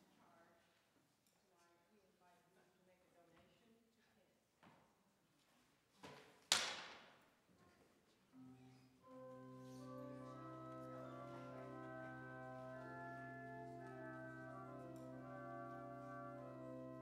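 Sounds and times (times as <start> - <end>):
church organ playing chords: 9.0 - 17.0.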